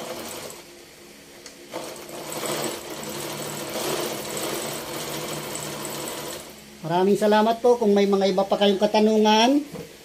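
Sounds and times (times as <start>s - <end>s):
sewing machine stitching: 0.0s - 0.6s, 1.7s - 6.5s.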